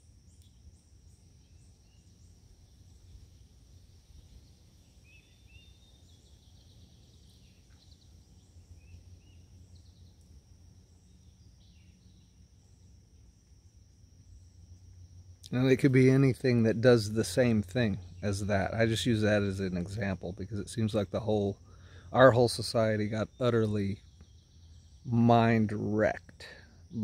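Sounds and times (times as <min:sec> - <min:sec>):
high insect drone: 0:00.0 - 0:27.0
soft bird chirps: 0:00.3 - 0:13.7, 0:20.8 - 0:27.0.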